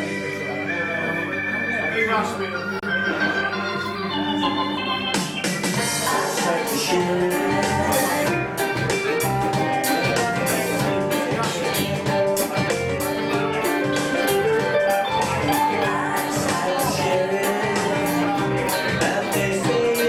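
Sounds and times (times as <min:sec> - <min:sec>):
electric guitars playing rock: 0:00.0 - 0:20.0
steady drum beat: 0:05.2 - 0:20.0.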